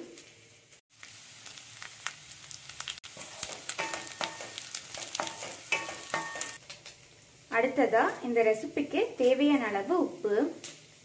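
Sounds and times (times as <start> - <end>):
food sizzling in hot oil: 0.0 - 11.0
spatula scraping metal pan: 3.2 - 6.6.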